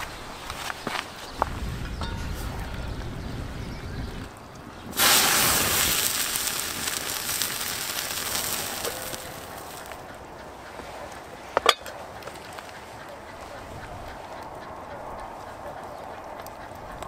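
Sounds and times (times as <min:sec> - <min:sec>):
wood fire crackling and hissing: 0:01.3 - 0:10.1.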